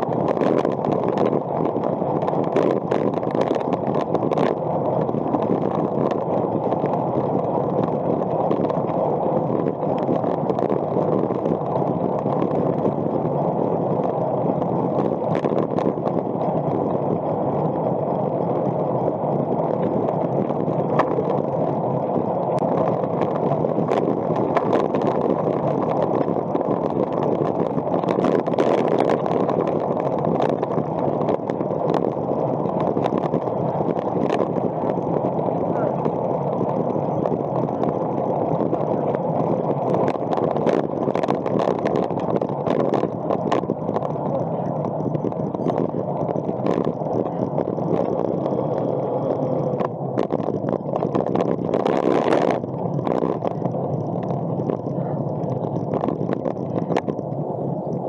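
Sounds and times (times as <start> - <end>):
faint ticks from road: 0.0 - 58.0
wind rushing over camera: 0.0 - 58.0.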